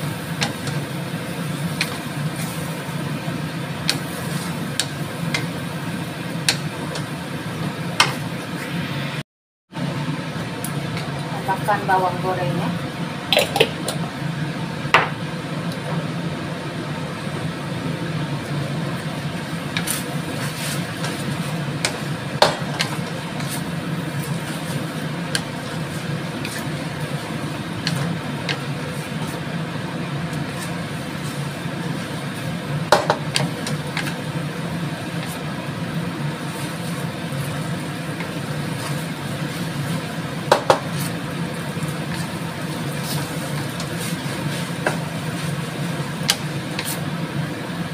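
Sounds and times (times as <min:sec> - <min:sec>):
spatula stirring noodles in wok: 0:00.0 - 0:08.2, 0:18.1 - 0:47.9
spatula knocking against wok: 0:40.5 - 0:40.9.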